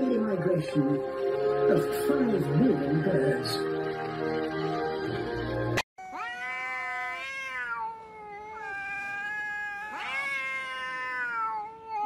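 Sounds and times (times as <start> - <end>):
cats yowling: 6.0 - 12.0.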